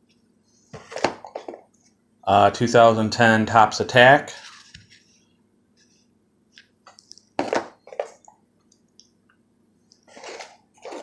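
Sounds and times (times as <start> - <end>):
plastic sleeves rustling: 6.9 - 8.3, 10.0 - 11.0
cards tapping down: 7.4 - 8.2.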